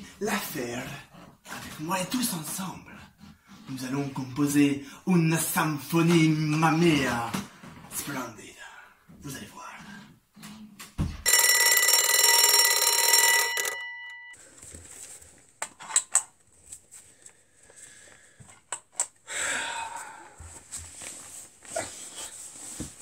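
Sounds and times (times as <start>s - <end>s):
alarm bell ringing: 11.2s - 14.4s.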